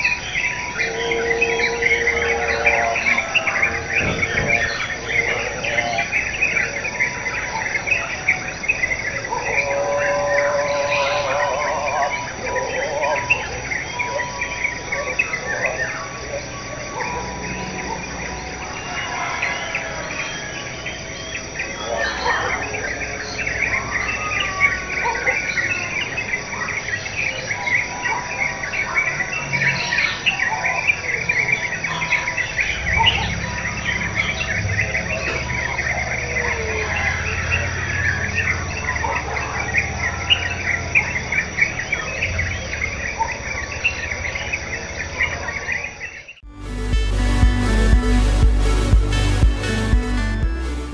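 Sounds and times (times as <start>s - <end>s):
high insect trill: 0.0s - 21.4s
birds chirping and calling: 0.0s - 46.4s.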